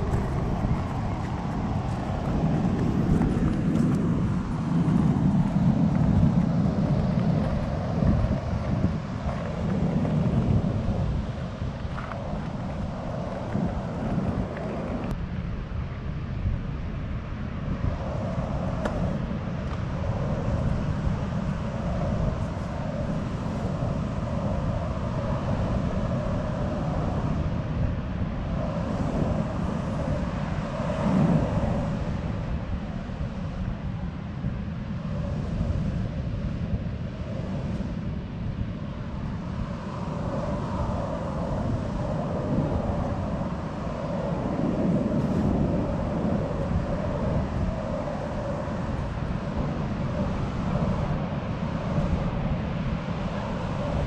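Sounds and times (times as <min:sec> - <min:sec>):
ocean surf rushing: 0:00.0 - 0:15.1
ocean surf: 0:00.0 - 0:54.0
wind buffeting microphone: 0:00.0 - 0:54.0.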